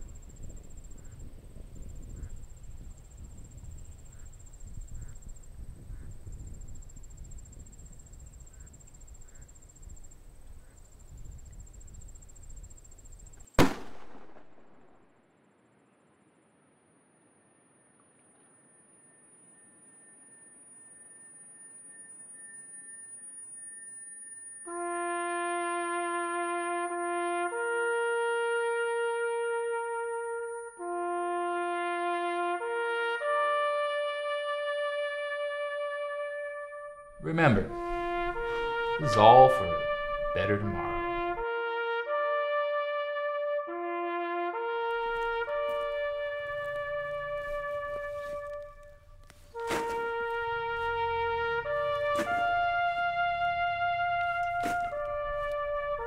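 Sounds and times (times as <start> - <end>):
insects buzzing: 0.0 - 13.7, 15.6 - 31.6, 37.1 - 41.8, 44.7 - 56.0
gunshot: 13.6 - 15.0, 49.6 - 50.1
slow brass melody: 24.6 - 56.0.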